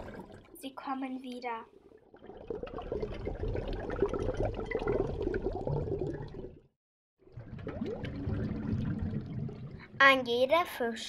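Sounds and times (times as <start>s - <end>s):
bubbling gurgling water: 0.0s - 0.6s, 2.0s - 10.0s.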